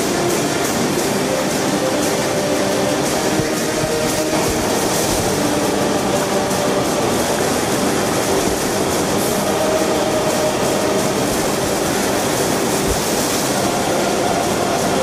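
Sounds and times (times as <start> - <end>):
moving river water: 0.0 - 15.0
waterfall roaring: 0.0 - 15.0.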